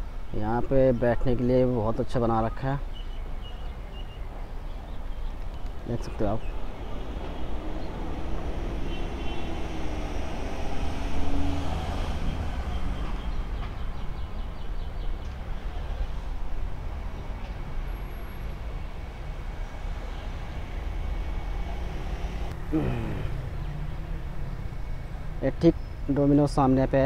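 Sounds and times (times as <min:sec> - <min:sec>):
low traffic rumble: 0:00.0 - 0:27.0
vehicle passing: 0:05.2 - 0:14.6, 0:15.4 - 0:26.7.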